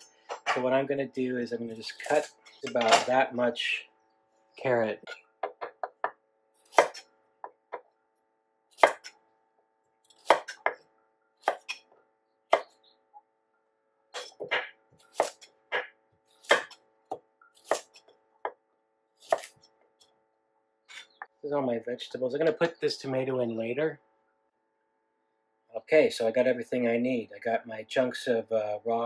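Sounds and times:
knife chopping on wooden board: 5.4 - 7.9, 8.8 - 9.1, 10.2 - 10.8, 14.2 - 18.6.

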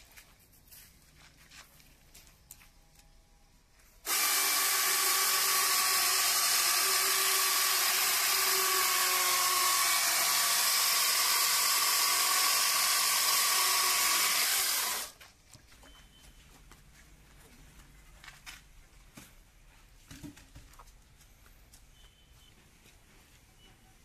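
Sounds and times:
electric chainsaw cutting log: 4.0 - 15.2.

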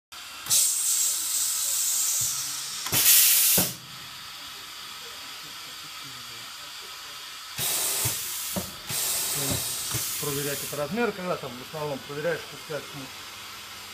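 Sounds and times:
compressed air hissing: 0.4 - 3.8, 6.9 - 11.0
short air blast with knock: 0.5 - 3.9, 7.6 - 10.7.

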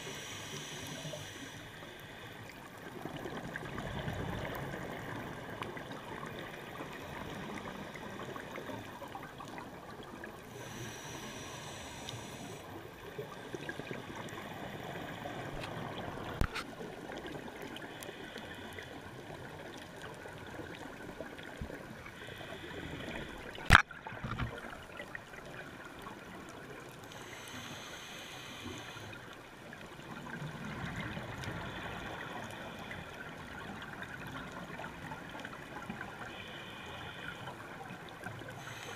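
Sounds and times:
diver regulator breathing: 0.0 - 2.5, 10.4 - 12.8, 17.7 - 19.3, 21.8 - 24.4, 27.1 - 29.4, 31.4 - 33.4, 36.2 - 37.8, 38.4 - 38.9
muffled underwater noise: 0.0 - 24.8, 25.4 - 38.9.

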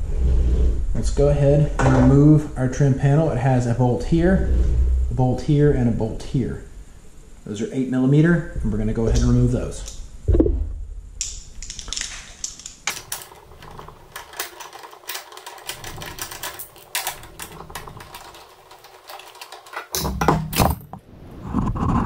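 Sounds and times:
handling sound: 11.4 - 21.1.

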